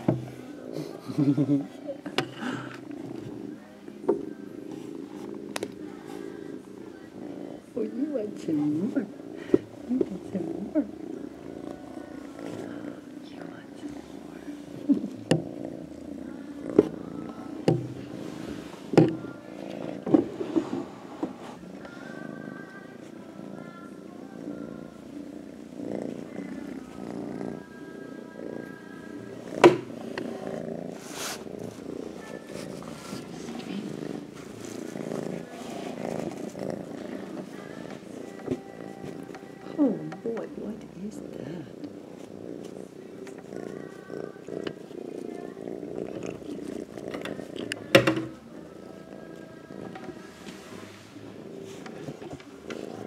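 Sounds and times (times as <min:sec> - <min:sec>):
kitten purring: 0:00.0 - 0:53.0
faint rustles and clicks: 0:28.5 - 0:53.0.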